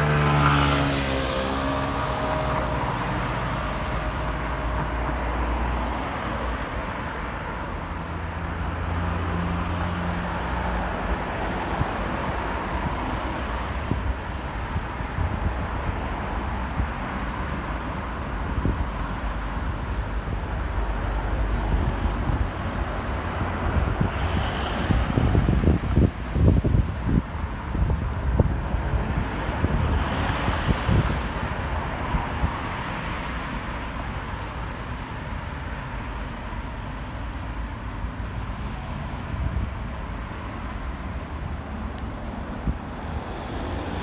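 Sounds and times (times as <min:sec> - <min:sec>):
street traffic rumble: 0:00.0 - 0:44.0
wind buffeting microphone: 0:21.4 - 0:32.9.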